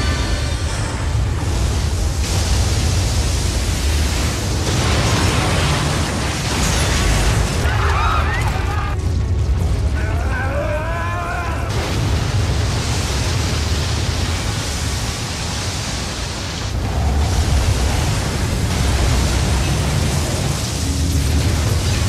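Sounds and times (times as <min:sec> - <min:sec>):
rushing roar of water: 0:00.0 - 0:22.0
people screaming: 0:07.6 - 0:09.0, 0:09.9 - 0:11.9.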